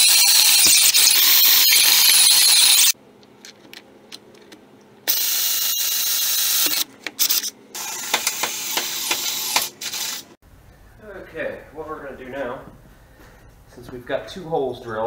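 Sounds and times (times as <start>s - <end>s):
cordless drill boring into metal: 0.0s - 2.9s.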